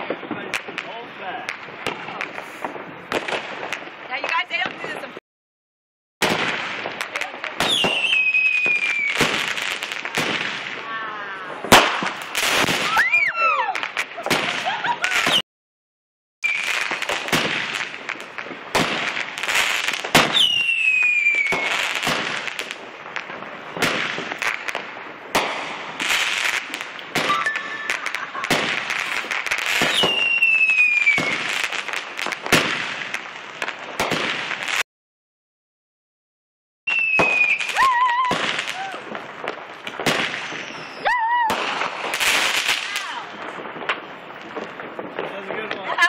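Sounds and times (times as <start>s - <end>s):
firecrackers banging and crackling: 0.0s - 5.2s, 6.2s - 15.4s, 16.4s - 34.9s, 36.9s - 46.0s
falling firework whistles: 7.6s - 10.4s, 11.7s - 15.4s, 16.4s - 17.8s, 19.5s - 22.4s, 26.0s - 31.7s, 36.9s - 39.0s, 40.0s - 43.0s.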